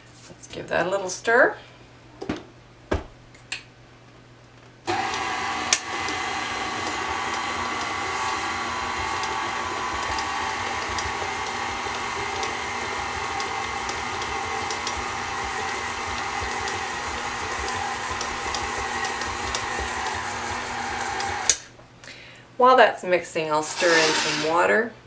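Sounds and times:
stand mixer motor hum: 4.9s - 21.7s.

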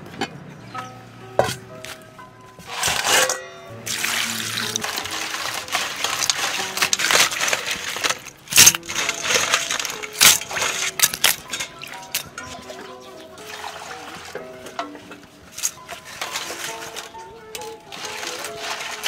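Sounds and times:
shells scraping against metal: 2.7s - 12.6s
sharp metal clanks: 2.7s - 12.8s
water splashing: 3.8s - 14.8s.

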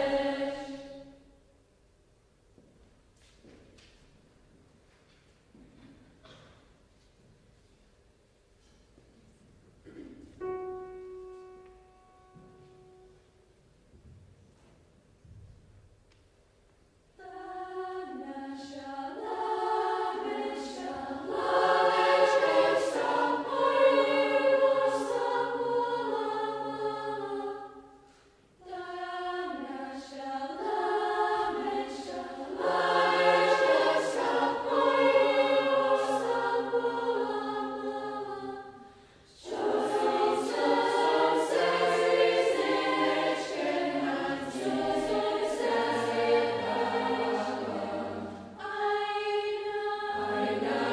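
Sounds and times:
choir singing sustained chords: 0.0s - 1.5s, 17.2s - 50.9s.

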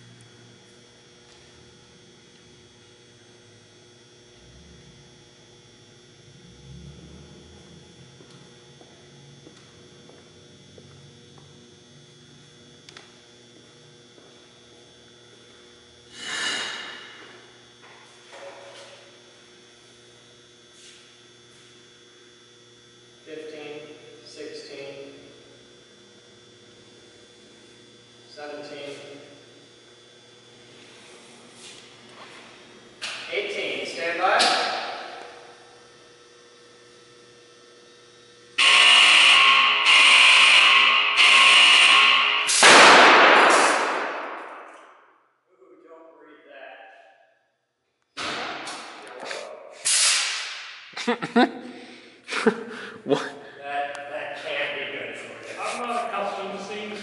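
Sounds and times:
electrical mains hum: 0.0s - 57.0s
loud warning horn blasts: 38.6s - 44.0s.

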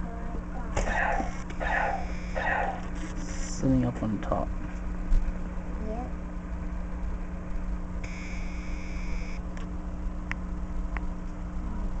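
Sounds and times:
aquarium air pump hum: 0.0s - 12.0s
electronic beep: 1.2s - 2.4s.

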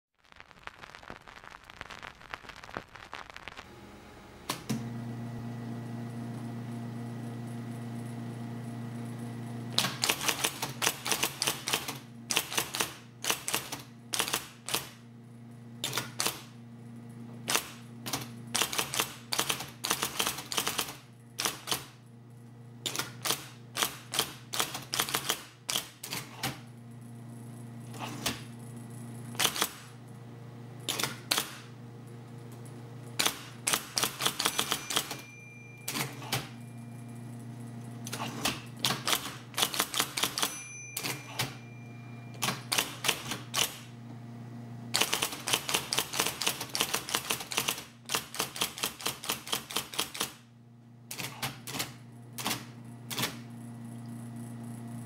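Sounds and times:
typewriter motor hum: 9.7s - 15.0s, 15.8s - 16.6s, 17.4s - 22.0s, 22.8s - 26.7s, 27.8s - 30.0s, 30.8s - 31.7s, 32.6s - 41.6s, 42.3s - 43.9s, 44.9s - 50.4s, 51.1s - 53.6s
typewriter key strikes: 33.2s - 36.5s, 38.4s - 41.6s.

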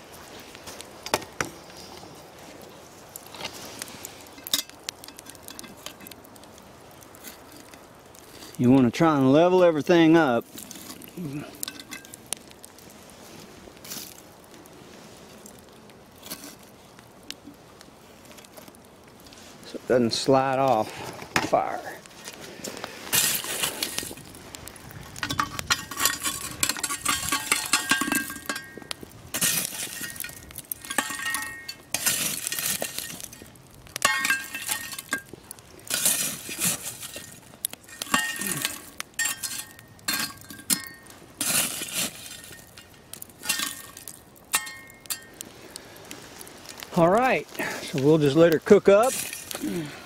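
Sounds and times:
charcoal clinking against metal pot: 4.2s - 6.3s, 10.2s - 12.3s, 23.1s - 24.3s, 25.1s - 45.4s, 48.6s - 50.0s.

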